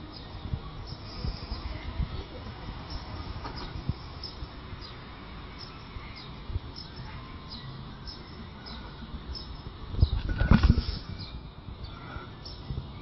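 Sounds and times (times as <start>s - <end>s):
low background noise: 0.0s - 13.0s
bird chirping: 2.8s - 13.0s.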